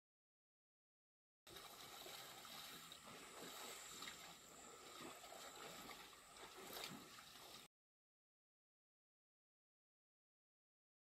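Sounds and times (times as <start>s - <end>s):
water sloshing: 1.5s - 7.7s.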